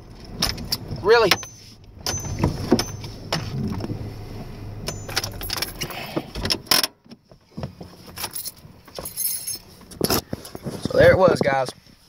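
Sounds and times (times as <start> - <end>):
truck engine running: 0.0 - 6.4
keys jangling: 4.9 - 6.1, 8.2 - 10.6.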